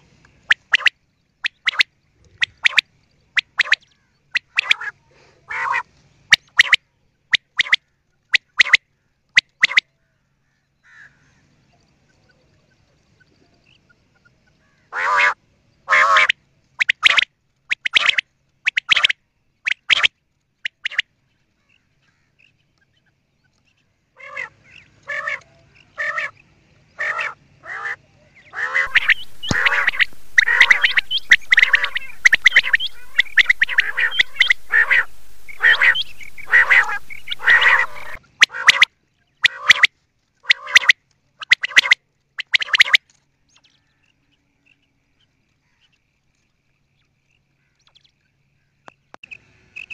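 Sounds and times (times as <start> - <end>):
quail calling: 3.4 - 3.8, 15.0 - 18.2, 28.6 - 39.9, 40.5 - 43.0
faint hiss: 28.9 - 38.2.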